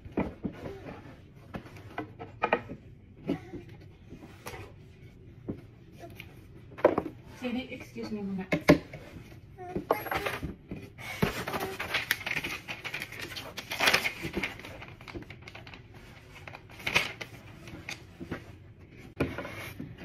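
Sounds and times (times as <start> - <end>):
paper rustling and crinkling: 11.0 - 20.0.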